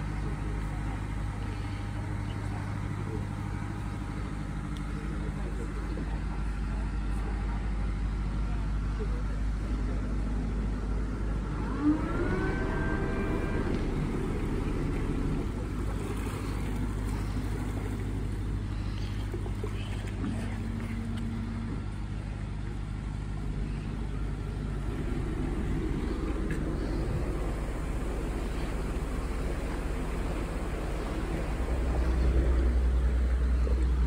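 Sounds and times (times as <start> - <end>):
boat engine humming: 0.0 - 34.0
rising multi-tone whine: 11.3 - 16.4.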